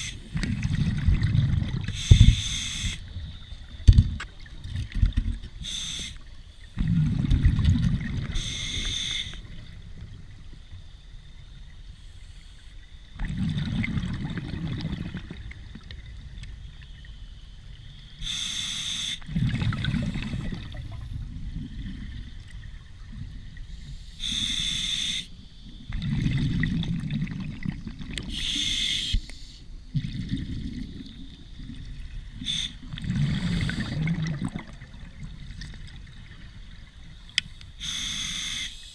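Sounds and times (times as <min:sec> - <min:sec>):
regulator hiss on inhale: 0:00.0 - 0:00.5, 0:01.8 - 0:03.1, 0:05.6 - 0:06.8, 0:08.3 - 0:09.6, 0:11.8 - 0:12.9, 0:18.2 - 0:19.3, 0:23.6 - 0:25.4, 0:28.3 - 0:29.8, 0:32.3 - 0:34.0, 0:37.4 - 0:38.9
exhaled air bubbling: 0:00.0 - 0:10.8, 0:13.0 - 0:17.1, 0:17.7 - 0:29.2, 0:29.8 - 0:38.7.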